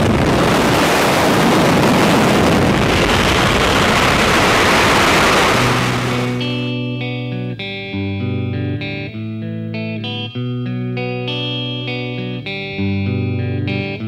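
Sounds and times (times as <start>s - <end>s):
wind buffeting microphone: 0.0s - 6.8s
music: 5.9s - 14.0s.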